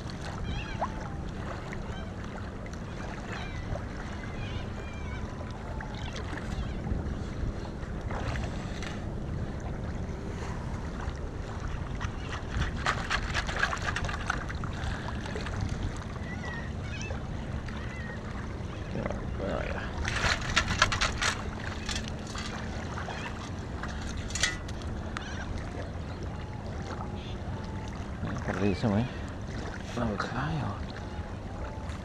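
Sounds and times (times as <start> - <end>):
shallow water sloshing: 0.0 - 32.0
steady low rumble: 3.8 - 32.0
sand scoop rattling in wet sand: 20.1 - 22.4.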